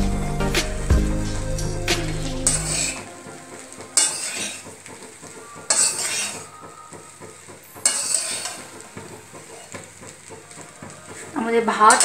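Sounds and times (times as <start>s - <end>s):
food sizzling: 0.1s - 12.0s
metal spoon scraping steel pan: 2.3s - 3.0s, 4.0s - 4.6s, 5.7s - 6.5s, 7.8s - 8.8s
clatter of stirring: 4.0s - 6.5s, 7.7s - 11.3s.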